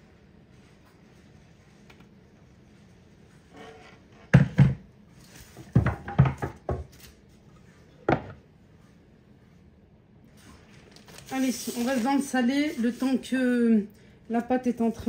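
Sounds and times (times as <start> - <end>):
bowl and board knocking on counter: 4.3 - 4.9, 5.7 - 6.9, 8.1 - 8.4.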